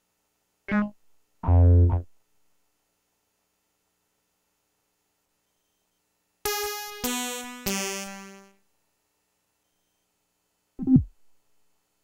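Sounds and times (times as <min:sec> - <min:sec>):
bright synthesizer notes: 0:06.5 - 0:08.6.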